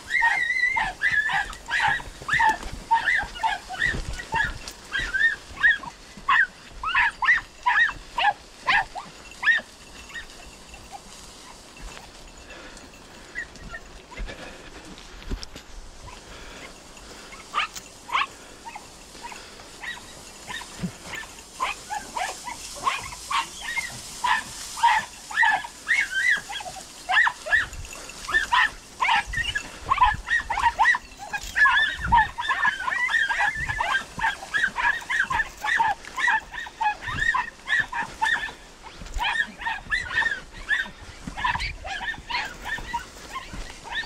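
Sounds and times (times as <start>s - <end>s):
dogs yelping: 0.0s - 14.7s, 16.0s - 44.0s.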